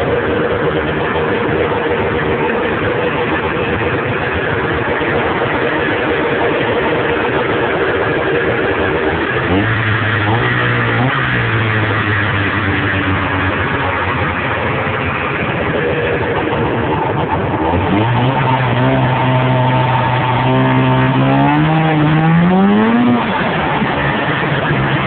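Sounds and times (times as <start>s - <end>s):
snowmobile engine running: 0.0s - 25.0s.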